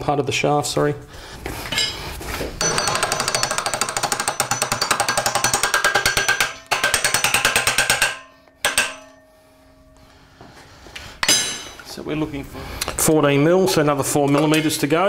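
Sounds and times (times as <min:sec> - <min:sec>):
hand ratchet clicking: 0:02.6 - 0:09.1.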